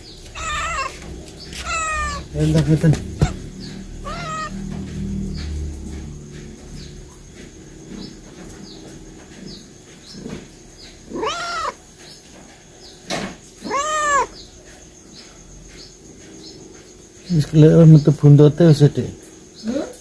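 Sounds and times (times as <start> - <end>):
cat meowing: 0.0 - 4.7, 11.1 - 11.8, 13.6 - 14.4.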